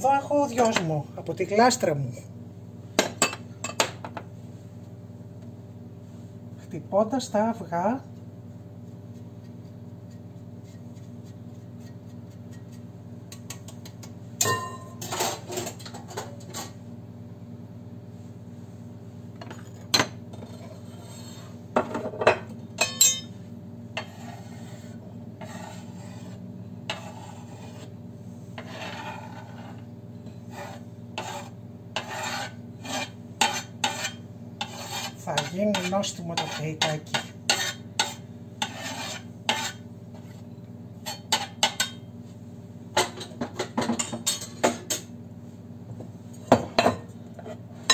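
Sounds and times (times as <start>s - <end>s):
low kitchen hum: 0.0s - 47.9s
cheese being grated: 24.0s - 28.0s, 28.6s - 29.8s, 30.5s - 39.8s
plates and utensils clattering: 43.0s - 45.1s.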